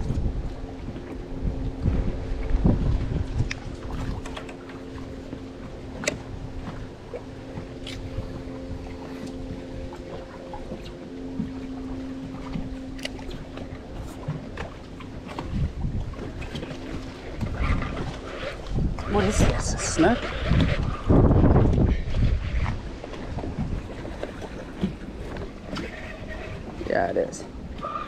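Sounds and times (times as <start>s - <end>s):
electric motor hum: 0.0s - 24.1s
wind buffeting microphone: 0.0s - 28.0s.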